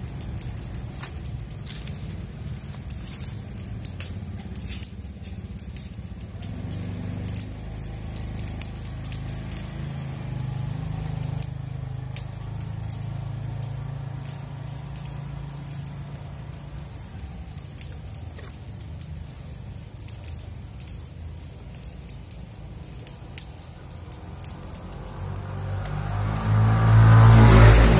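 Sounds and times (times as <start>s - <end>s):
low engine hum: 0.0s - 27.9s
tape clicks and crackles: 0.1s - 9.7s.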